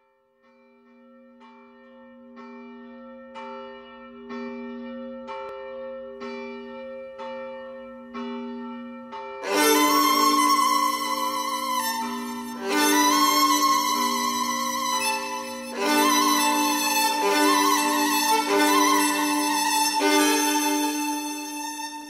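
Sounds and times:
bell tolling: 0:09.4 - 0:22.0
band playing led by violin: 0:09.5 - 0:22.0.

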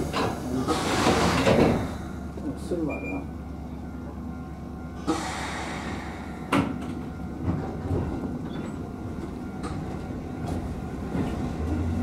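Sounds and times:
train equipment humming: 0:00.0 - 0:12.0.

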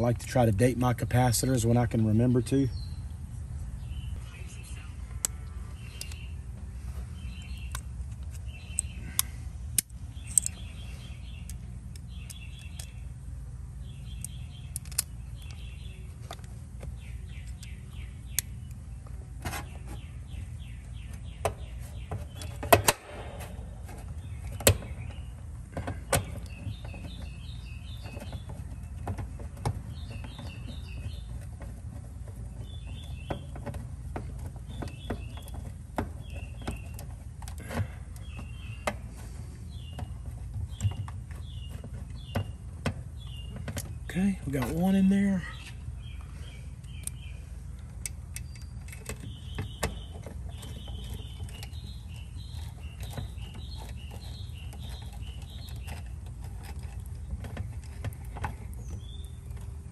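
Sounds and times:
bird singing chirps: 0:00.0 - 0:59.9
metal clicks and taps: 0:07.6 - 0:10.6, 0:14.2 - 0:15.6.

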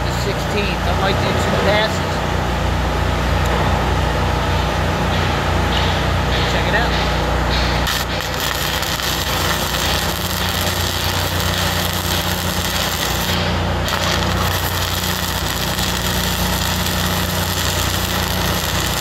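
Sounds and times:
low engine drone: 0:00.0 - 0:19.0
welding arc crackling: 0:07.6 - 0:19.0.

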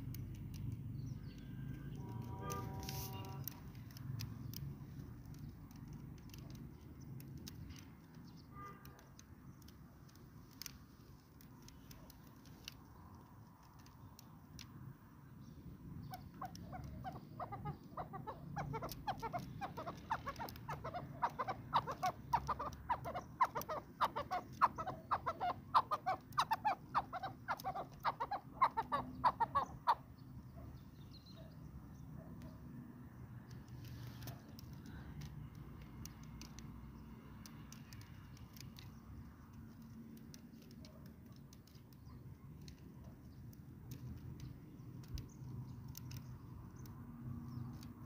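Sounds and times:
partridge clucking calls: 0:16.0 - 0:30.1.

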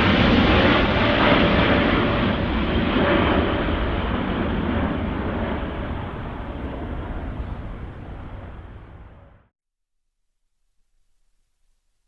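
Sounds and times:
jet engines at takeoff: 0:00.0 - 0:09.5.

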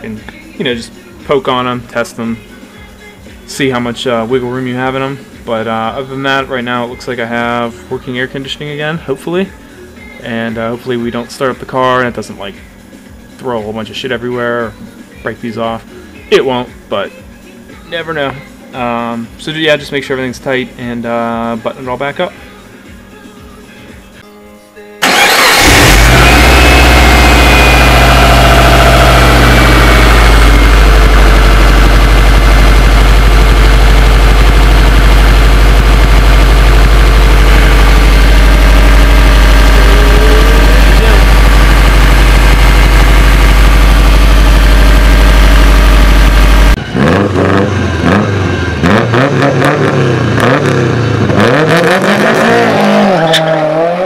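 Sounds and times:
car engine starting and idling: 0:25.0 - 0:53.9
sound rising and falling in pitch: 0:25.1 - 0:32.9, 0:33.6 - 0:54.0.

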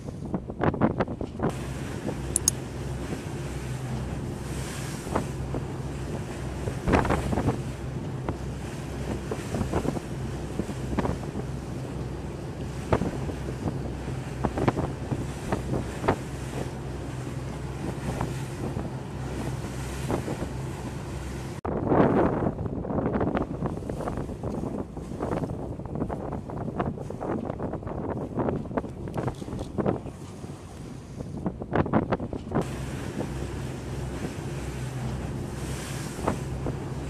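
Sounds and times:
boat engine humming: 0:00.0 - 0:37.0
waves slapping against hull: 0:00.0 - 0:37.0
wind buffeting microphone: 0:00.0 - 0:37.0.

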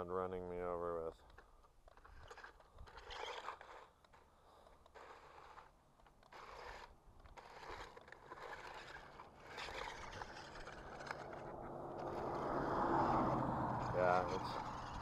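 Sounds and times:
toy tank tracks crunching gravel: 0:01.0 - 0:15.0.

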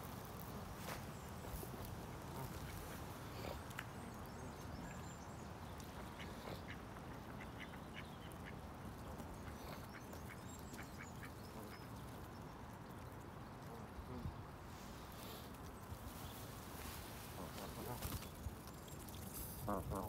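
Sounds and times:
low background noise: 0:00.0 - 0:20.0
waterfowl calls: 0:16.8 - 0:18.2, 0:19.4 - 0:20.0.

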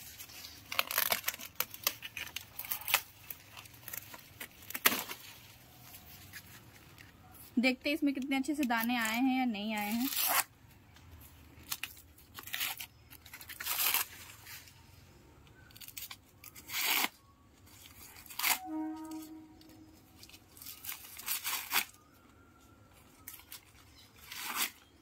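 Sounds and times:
corn husk leaves tearing: 0:00.0 - 0:07.0, 0:09.8 - 0:10.5, 0:11.6 - 0:14.7, 0:15.7 - 0:22.3, 0:23.1 - 0:25.0.

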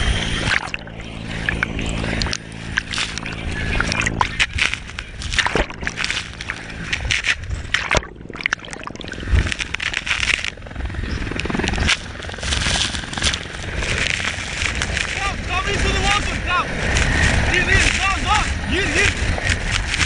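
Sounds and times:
rotor downwash buffeting microphone: 0:00.0 - 0:20.0
water splashing: 0:00.3 - 0:10.0.

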